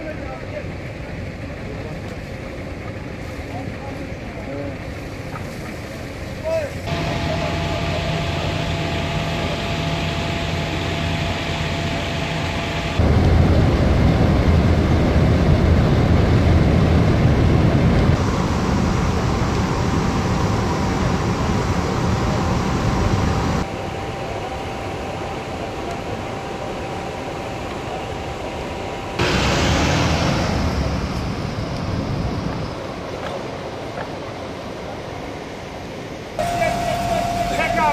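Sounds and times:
fire truck motors running: 0:06.9 - 0:32.6
gas jet rushing: 0:29.2 - 0:32.6.

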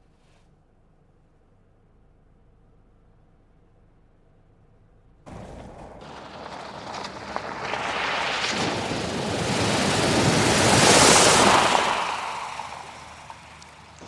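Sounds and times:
car splashing through water: 0:05.3 - 0:14.0.

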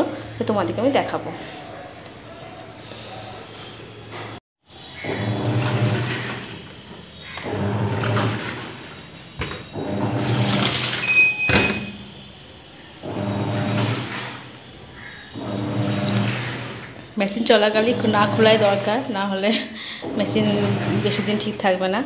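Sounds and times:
washing machine motor humming: 0:00.0 - 0:22.0
water swishing: 0:05.0 - 0:09.2, 0:13.0 - 0:19.2, 0:20.0 - 0:21.8.

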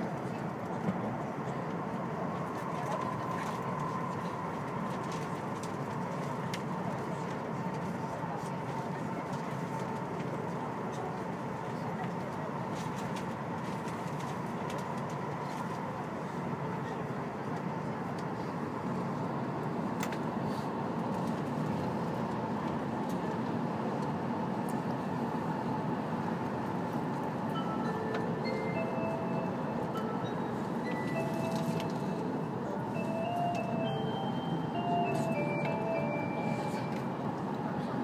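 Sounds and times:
train running rumble: 0:00.0 - 0:38.0
onboard chime melody: 0:27.6 - 0:32.1, 0:32.9 - 0:37.2.

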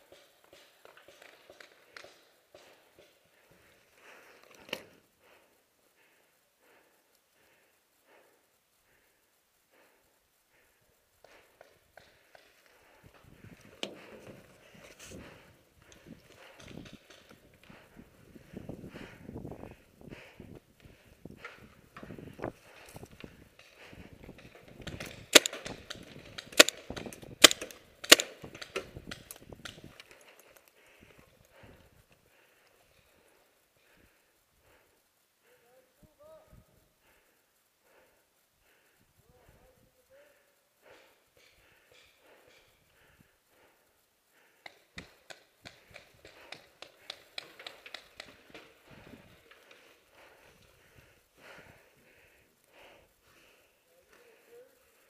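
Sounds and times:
faint pops and clicks: 0:11.2 - 0:33.0, 0:44.3 - 0:51.6
paintball pistol shots: 0:24.9 - 0:29.3.

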